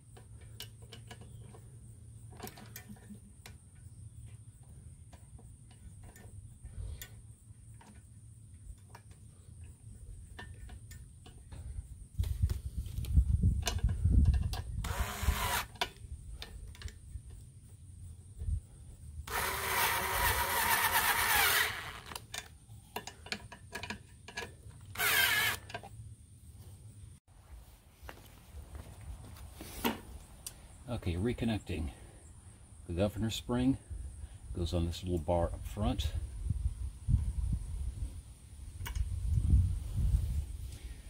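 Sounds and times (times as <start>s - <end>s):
cordless drill running: 14.8s - 15.8s, 19.3s - 22.2s, 24.9s - 25.6s.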